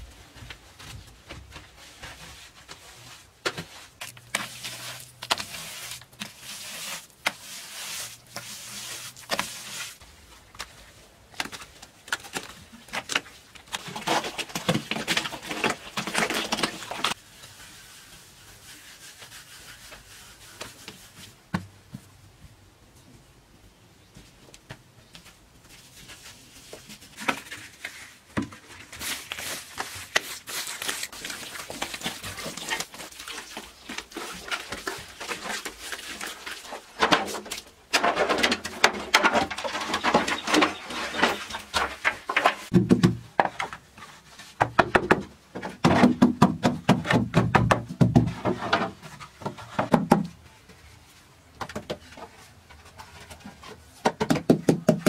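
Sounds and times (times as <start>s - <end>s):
bamboo scraping on floor: 1.7s - 10.0s, 25.7s - 42.7s
bamboo poles knocking and clattering: 10.5s - 17.2s, 29.8s - 50.4s, 51.5s - 55.0s.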